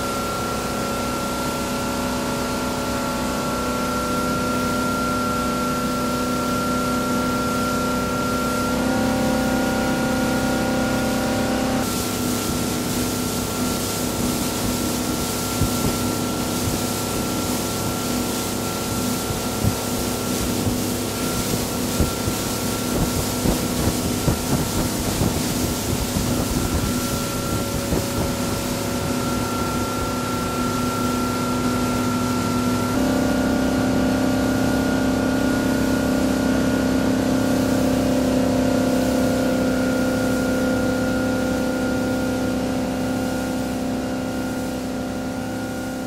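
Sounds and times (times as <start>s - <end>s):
motorboat engine running: 0.0s - 46.0s
rush of wake and spray: 0.0s - 46.0s.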